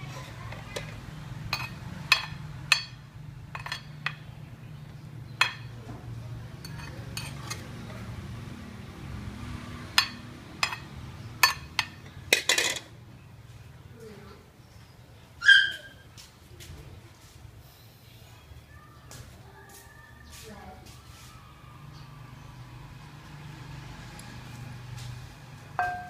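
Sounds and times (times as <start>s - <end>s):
metal spatula clinking on pan: 1.5s - 4.3s, 6.6s - 7.6s, 10.0s - 12.9s, 25.8s - 26.0s.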